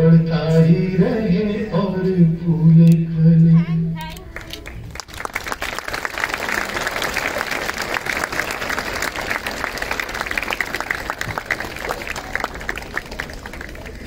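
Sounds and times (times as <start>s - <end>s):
crowd applauding: 4.4s - 14.0s.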